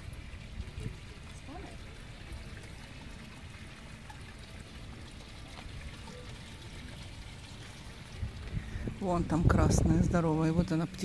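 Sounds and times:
fountain splashing into pond: 0.0s - 11.0s.

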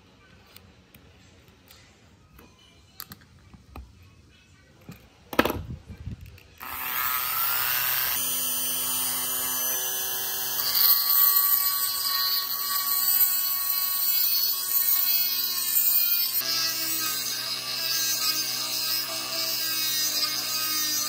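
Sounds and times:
rotary tool whining: 6.3s - 21.0s
grinding bit on metal: 6.6s - 21.0s.

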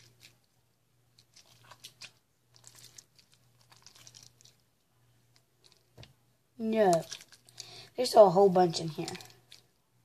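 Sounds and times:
slime squished in hands: 1.2s - 4.7s, 6.8s - 7.7s.

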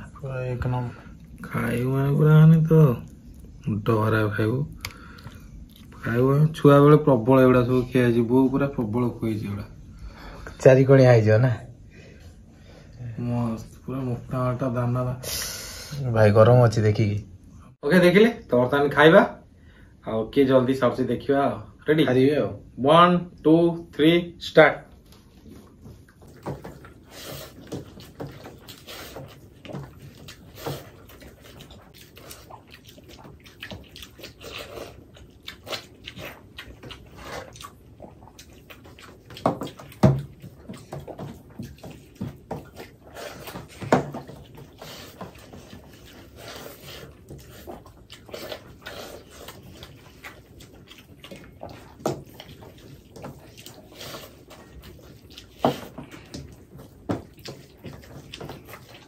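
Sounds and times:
chewing and lip smacking: 4.7s - 6.0s, 25.1s - 59.0s
wet squishing of fingers in rice: 24.9s - 59.0s.

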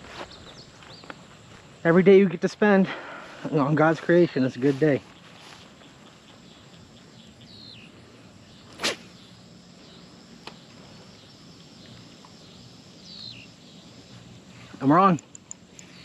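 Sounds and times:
insect drone: 0.0s - 16.0s
fishing rod swishing: 8.7s - 9.2s.

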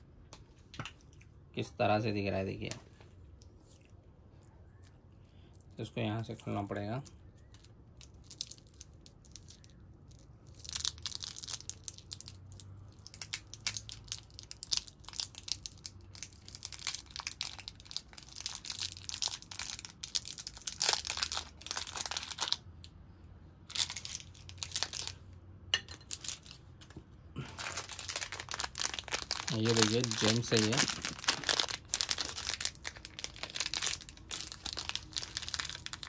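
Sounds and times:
foil wrapper crinkling and tearing: 5.4s - 22.6s, 23.7s - 25.2s, 26.0s - 26.6s, 27.4s - 36.0s.

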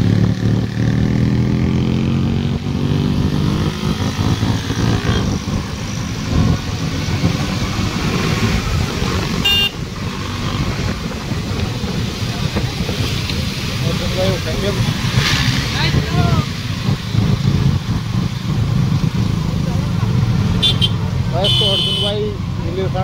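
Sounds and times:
motorcycle engine running: 0.0s - 22.9s
wind buffeting microphone: 0.8s - 20.3s
vehicle horn toot: 9.4s - 9.8s, 20.6s - 22.2s.

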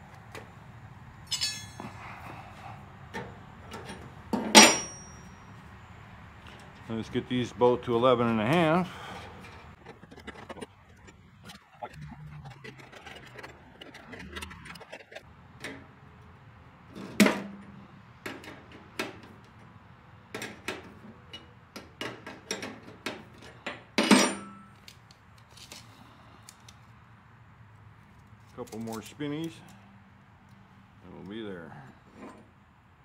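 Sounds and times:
loud metallic clanks: 4.4s - 5.4s.

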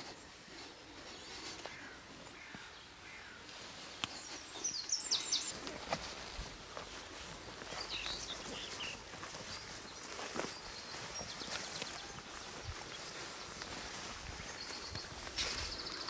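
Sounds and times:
birds singing: 0.0s - 16.0s.

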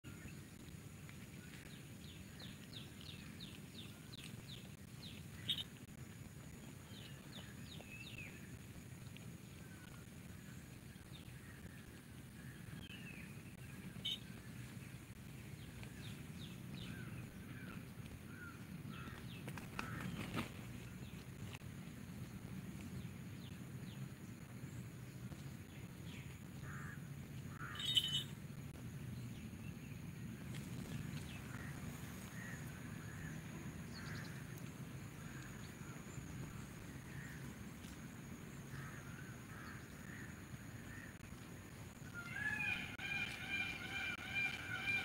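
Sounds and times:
small birds chirping: 0.0s - 45.0s
steady low rumble: 0.0s - 45.0s
chicken wings flapping: 19.1s - 21.6s.

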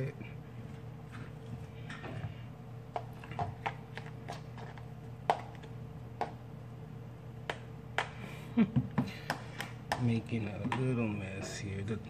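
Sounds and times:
steady low hum: 0.0s - 12.0s
knife tapping plastic container: 9.0s - 11.5s.

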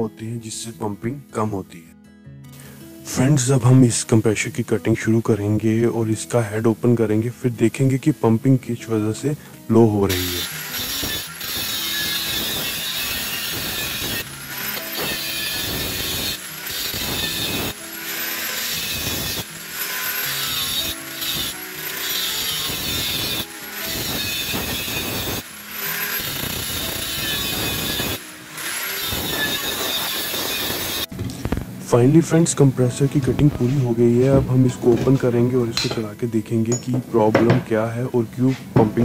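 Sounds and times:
cut-off wheel grinding steel: 10.1s - 31.1s.

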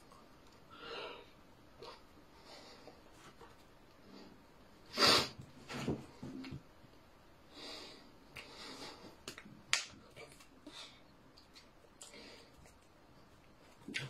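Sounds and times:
sharp hand slaps: 9.3s - 10.0s.

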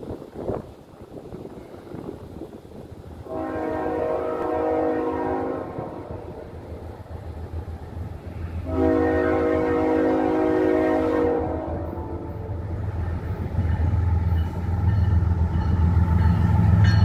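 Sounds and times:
train horn blasts: 3.2s - 6.4s, 8.6s - 12.8s.

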